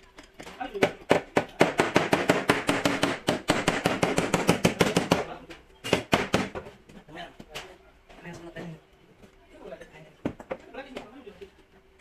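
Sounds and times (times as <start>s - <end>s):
hammer tapping sheet metal: 0.8s - 5.3s.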